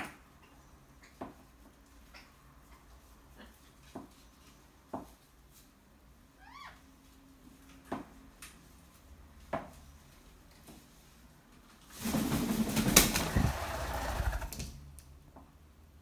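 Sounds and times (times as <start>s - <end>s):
bird wings flapping: 11.9s - 14.8s.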